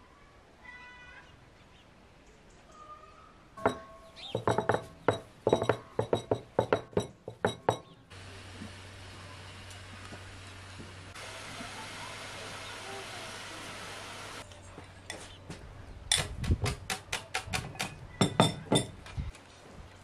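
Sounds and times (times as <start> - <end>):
steady hiss with low hum: 8.0 - 16.1.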